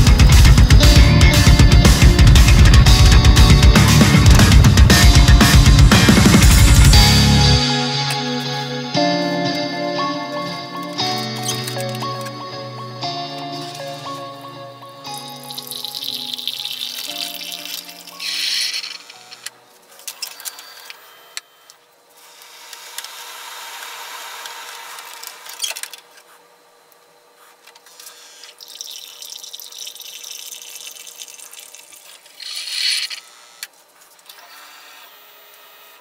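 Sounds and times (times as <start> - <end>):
coffee pouring and sputtering: 15.1 - 19.2, 28.0 - 33.0.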